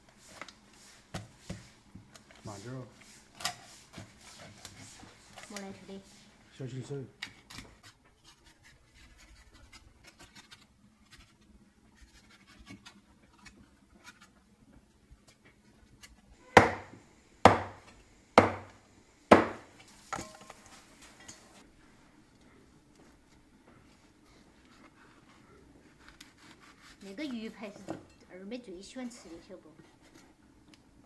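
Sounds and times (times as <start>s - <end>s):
cleaver chopping on wooden block: 16.6s - 16.9s, 17.5s - 17.8s, 18.4s - 18.7s, 19.3s - 19.6s
cleaver slicing and scraping fish: 25.9s - 27.2s.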